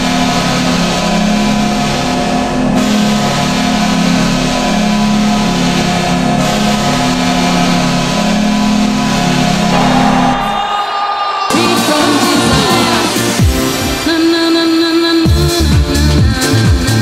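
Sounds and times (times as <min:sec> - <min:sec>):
arena goal horn: 0:09.7 - 0:13.3.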